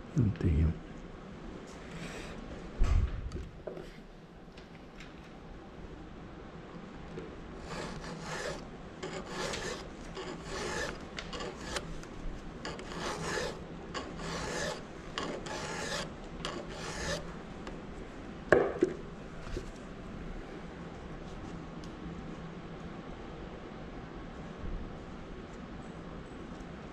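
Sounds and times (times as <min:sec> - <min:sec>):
file scraping metal tooth: 0:07.6 - 0:12.0, 0:12.6 - 0:17.3.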